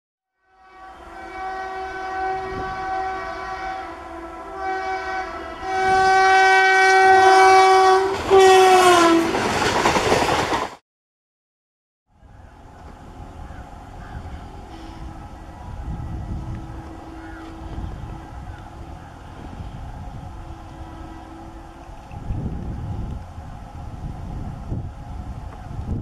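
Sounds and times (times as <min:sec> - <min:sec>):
locomotive air horn blasts: 0:00.4 - 0:09.4, 0:14.4 - 0:23.0
train coaches rushing by: 0:05.3 - 0:10.8.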